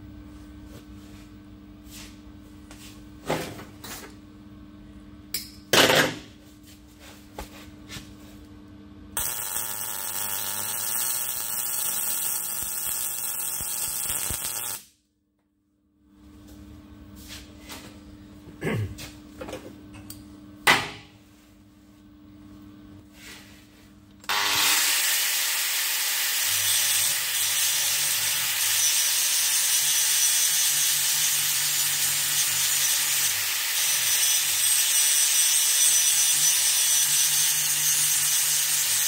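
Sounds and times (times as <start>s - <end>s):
welding arc crackling: 9.2s - 14.9s.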